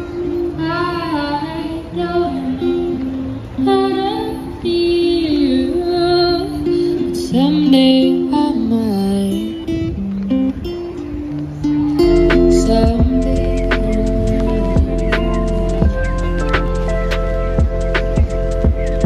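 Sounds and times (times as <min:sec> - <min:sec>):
person singing into a microphone: 0:00.0 - 0:10.0, 0:11.9 - 0:17.1
acoustic guitar strumming: 0:06.2 - 0:19.0.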